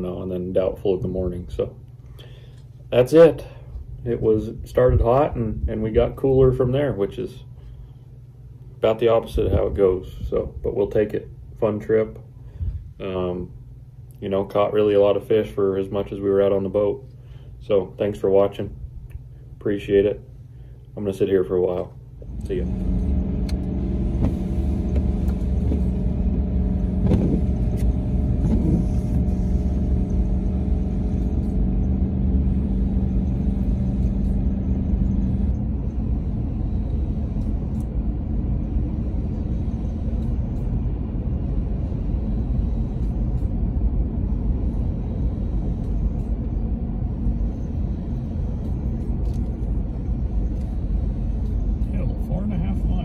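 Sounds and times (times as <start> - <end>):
steady hum: 0.0 - 53.0
engine and tyre rumble in car: 22.2 - 53.0.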